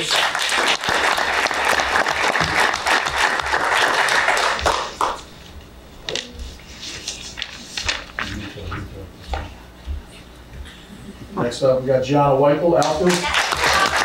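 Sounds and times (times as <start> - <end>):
audience applause: 0.0 - 5.3, 13.0 - 14.0.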